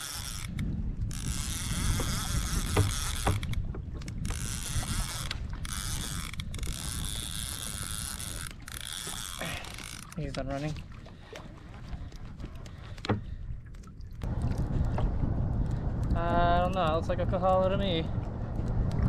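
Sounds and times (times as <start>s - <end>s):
fishing reel drag whirring: 0.0s - 10.3s.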